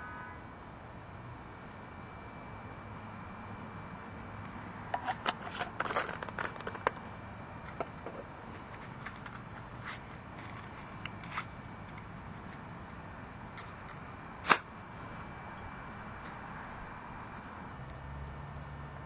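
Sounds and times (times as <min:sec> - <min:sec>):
crinkly clicks and scrapes: 0:04.9 - 0:14.7.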